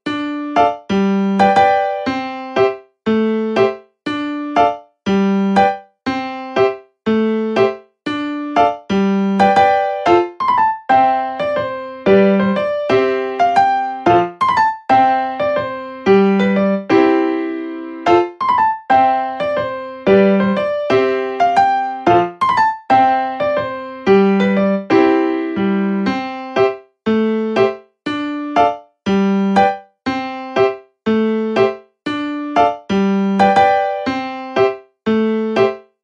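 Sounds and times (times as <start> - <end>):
piano tune: 0.0 - 36.0.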